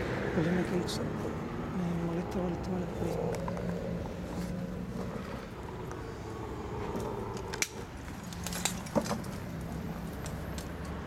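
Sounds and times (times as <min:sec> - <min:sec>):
steady low hum: 0:00.0 - 0:10.6
handling clicks and metallic rattles: 0:07.0 - 0:11.0.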